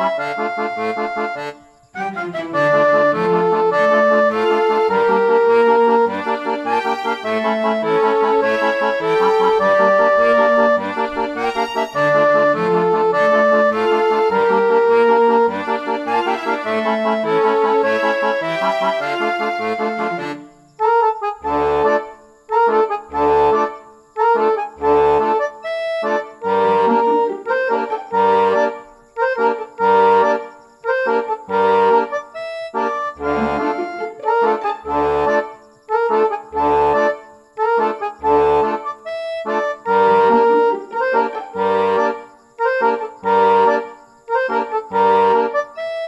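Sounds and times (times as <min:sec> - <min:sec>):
instrumental background music: 0:00.0 - 0:46.0.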